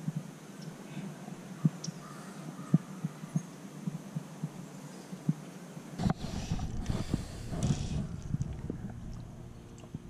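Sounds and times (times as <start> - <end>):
microphone pops and thumps: 6.0 - 9.3
crackling rumble: 6.0 - 10.0.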